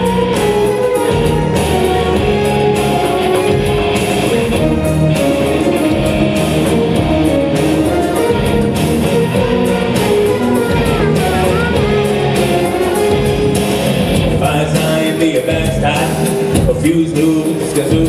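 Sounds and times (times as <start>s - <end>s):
wavering melody line: 0.0s - 14.4s
hand drum: 0.0s - 14.6s
electric guitars and bass: 0.0s - 18.0s.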